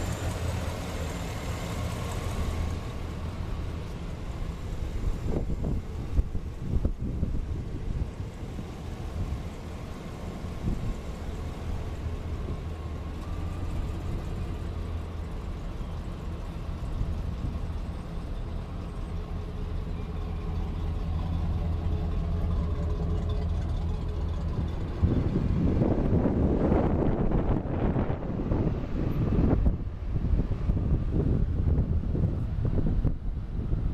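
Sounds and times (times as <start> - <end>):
truck engine idling: 0.0 - 33.9
wind buffeting microphone: 4.7 - 8.3, 23.7 - 33.9.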